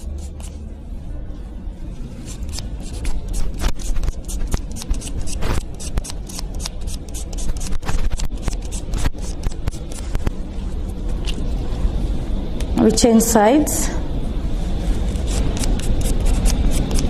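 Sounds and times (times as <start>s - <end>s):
nail buffer scratching on fingernail: 0.0s - 0.6s, 2.2s - 10.3s, 15.1s - 17.0s
low steady hum: 0.0s - 17.0s.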